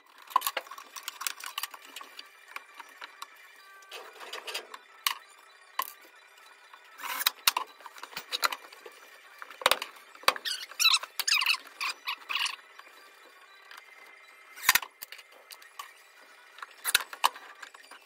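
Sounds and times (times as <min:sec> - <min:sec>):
squeaky scraping: 0:10.3 - 0:12.6.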